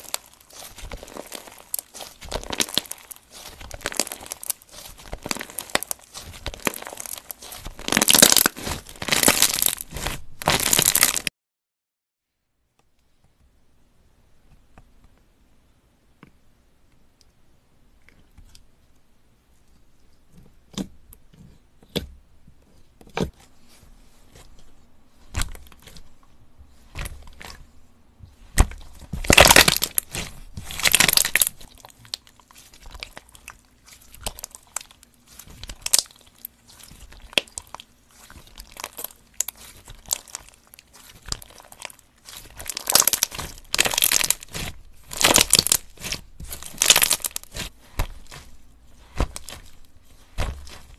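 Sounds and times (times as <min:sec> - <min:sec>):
slime crackling when squeezed: 0:00.0 - 0:11.3, 0:28.6 - 0:50.9
slime clicking and popping: 0:36.9 - 0:48.4.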